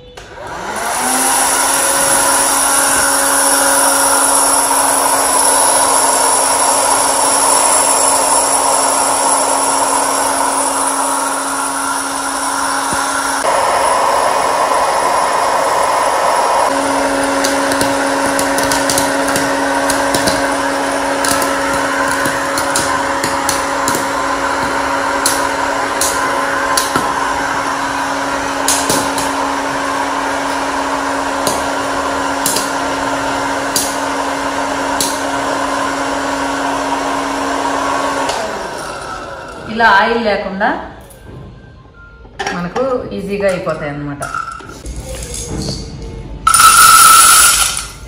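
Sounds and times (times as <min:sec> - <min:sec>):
hot-air fryer blower hum: 0:00.0 - 0:40.1, 0:46.4 - 0:48.0
popcorn kernels popping: 0:17.3 - 0:27.2, 0:28.6 - 0:29.4, 0:31.4 - 0:31.8, 0:32.4 - 0:32.8, 0:33.7 - 0:34.0, 0:46.5 - 0:48.0.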